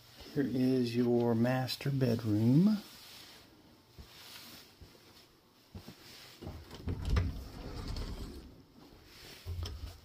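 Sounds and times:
closet doors clicking and knocking: 6.6s - 8.6s, 9.5s - 10.0s
low rumbling door movement: 6.6s - 8.7s.

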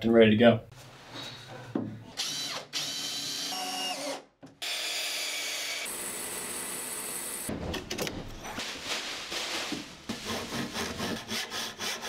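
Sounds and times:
cordless drill running: 2.2s - 7.5s
bandsaw cutting wood: 2.3s - 7.5s
hand saw strokes: 10.1s - 12.0s.

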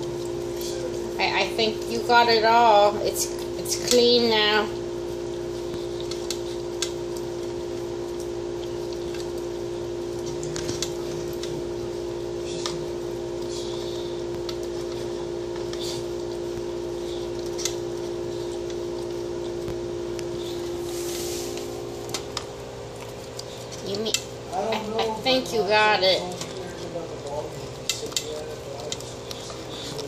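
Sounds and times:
steady hum: 0.0s - 30.0s.

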